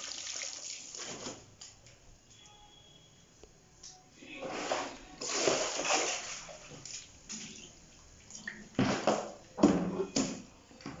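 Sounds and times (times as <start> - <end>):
water splashing onto tiled floor: 0.0 - 1.4, 5.2 - 7.4.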